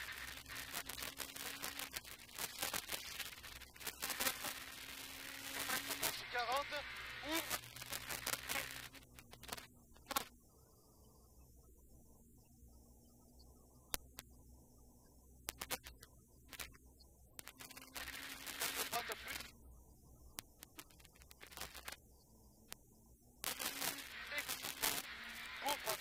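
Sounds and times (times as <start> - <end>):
crackling noise bursts: 0.0 - 26.0
sharp clicks: 7.0 - 10.3, 13.9 - 14.4, 15.4 - 16.8, 17.4 - 19.5, 20.3 - 22.0.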